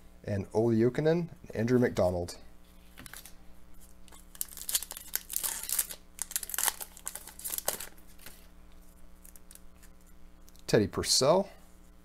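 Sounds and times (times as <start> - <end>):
foil wrapper crinkling and tearing: 4.1 - 8.5, 9.2 - 9.9.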